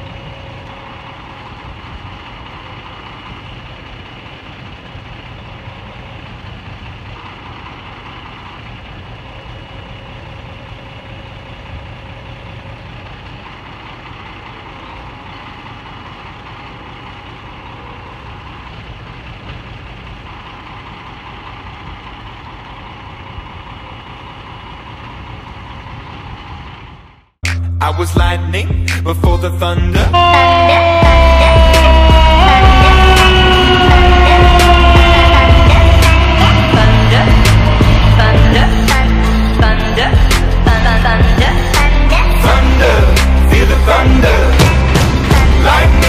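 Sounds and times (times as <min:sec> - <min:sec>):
diesel engine idling: 0:00.0 - 0:46.0
high-pitched noise: 0:30.2 - 0:46.0.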